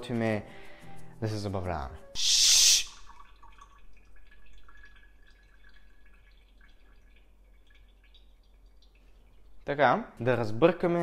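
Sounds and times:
light taps and drips: 3.0s - 10.4s.

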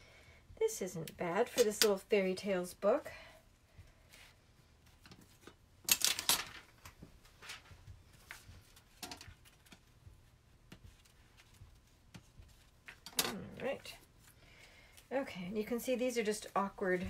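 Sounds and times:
paper rustling: 4.9s - 13.1s.

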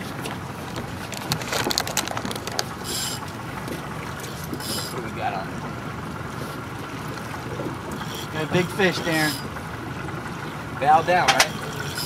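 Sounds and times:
fishing reel clicking: 11.3s - 12.0s.

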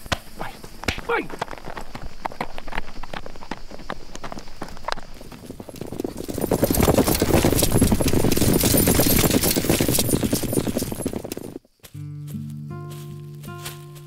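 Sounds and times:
horses galloping hoofbeats: 0.0s - 11.7s
music with held notes: 12.0s - 14.0s.

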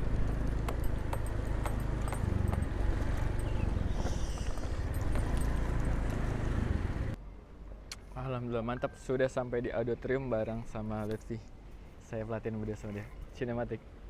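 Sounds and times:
motor scooter engine running: 0.0s - 7.1s.

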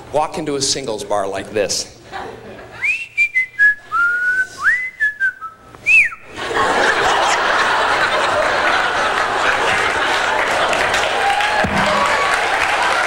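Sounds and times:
person whistling a tune: 2.8s - 6.2s
audience applause: 6.6s - 13.0s.

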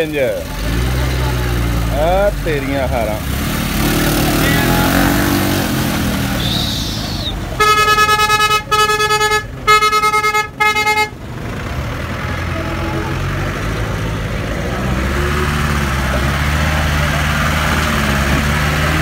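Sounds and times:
engines rumbling: 0.0s - 19.0s
vehicle horn honking: 6.4s - 11.2s, 12.3s - 13.6s.

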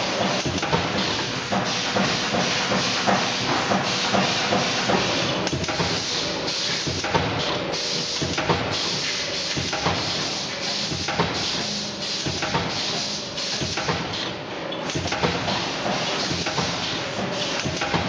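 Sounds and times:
sharp machine clacks: 0.0s - 14.1s
welding machine clatter: 0.0s - 18.0s.

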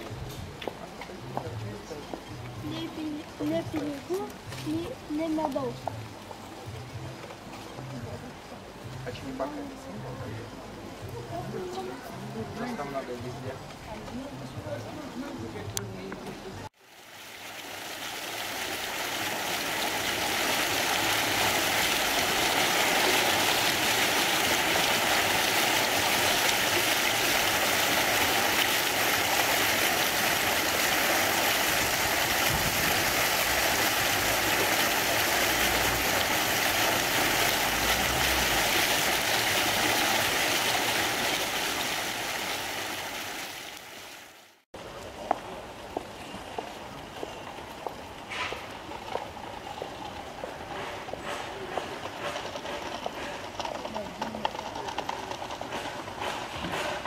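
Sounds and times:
fountain water splashing: 0.0s - 57.0s.

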